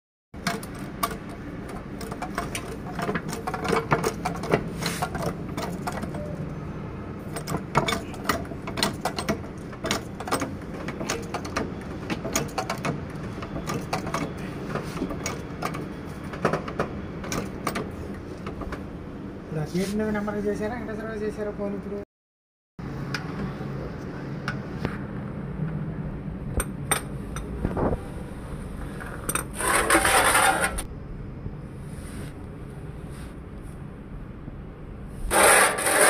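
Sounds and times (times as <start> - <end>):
hydraulic jack clicking and clanking: 0.4 - 6.4, 7.2 - 18.9.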